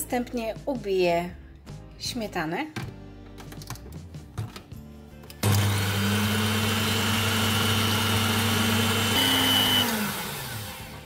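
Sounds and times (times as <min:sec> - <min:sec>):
electric mixer whipping cream: 0:05.4 - 0:11.0.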